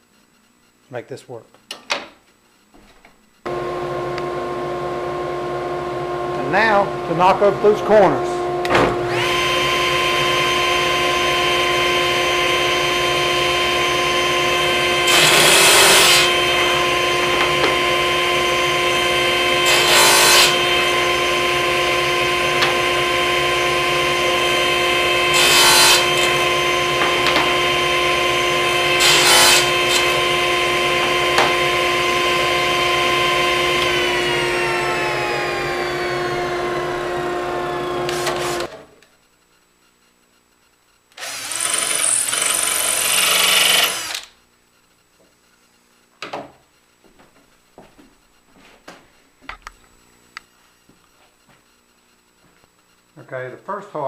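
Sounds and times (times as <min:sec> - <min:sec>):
table saw whine: 0:03.5 - 0:39.0, 0:41.2 - 0:44.4
saw cutting wood: 0:09.0 - 0:38.8, 0:41.2 - 0:44.3
saw blade winding down: 0:09.1 - 0:38.7, 0:41.2 - 0:44.4.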